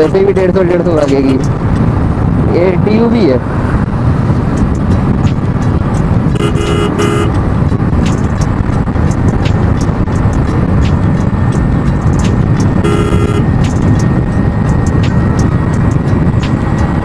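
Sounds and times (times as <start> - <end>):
motorcycle engine cruising: 0.0 - 17.0
wind rushing over microphone: 0.0 - 17.0
horn blasts: 6.3 - 7.4, 12.8 - 13.6.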